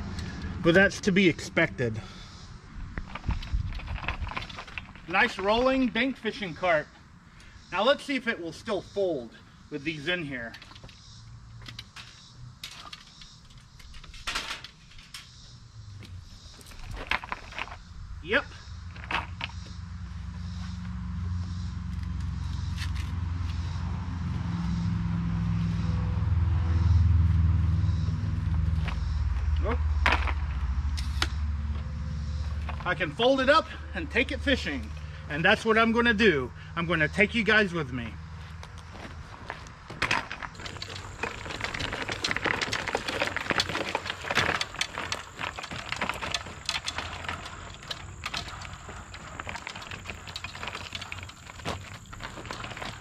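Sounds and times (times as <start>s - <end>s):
cart wheels crunching on gravel: 3.0s - 7.0s, 16.1s - 20.8s, 28.3s - 53.0s
footsteps: 38.3s - 53.0s
cart frame clicks: 39.6s - 53.0s.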